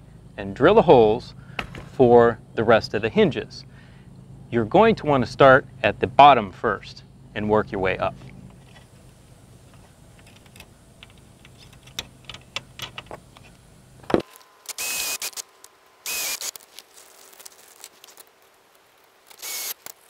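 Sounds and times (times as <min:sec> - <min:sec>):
faint clicks and handling noise: 0:08.2 - 0:15.8, 0:16.4 - 0:20.0
cordless drill drilling: 0:14.6 - 0:15.4, 0:16.0 - 0:16.6, 0:19.3 - 0:19.9.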